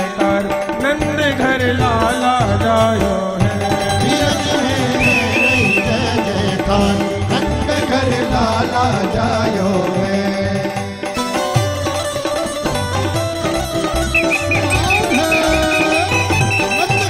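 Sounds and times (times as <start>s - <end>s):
hand drum rhythm: 0.0s - 17.0s
melody instruments: 11.2s - 17.0s
high wavering melodic phrase: 13.7s - 17.0s.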